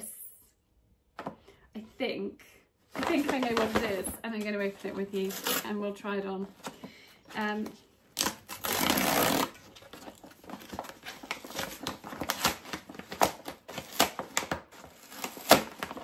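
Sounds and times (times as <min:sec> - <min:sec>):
paper and card rustling: 0:02.9 - 0:16.0
cardboard ripping: 0:08.2 - 0:16.0.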